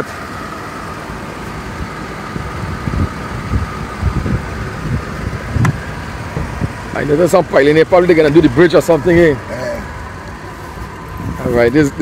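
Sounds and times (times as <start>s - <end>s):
pickup engine idling: 0.0s - 12.0s
wind buffeting on microphone: 1.8s - 6.9s.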